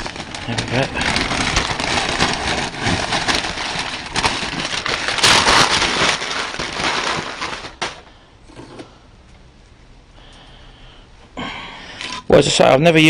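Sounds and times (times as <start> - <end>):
masking paper crackling and rustling: 0.0 - 8.2.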